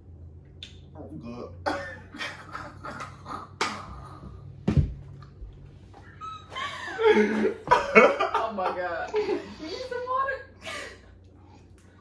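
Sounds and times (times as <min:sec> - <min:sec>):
people laughing: 0:06.1 - 0:09.6.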